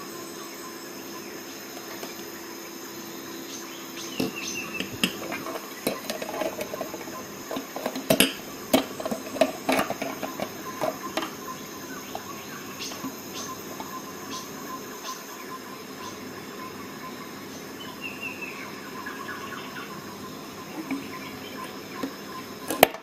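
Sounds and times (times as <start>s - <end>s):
faint background hum: 0.0s - 23.0s.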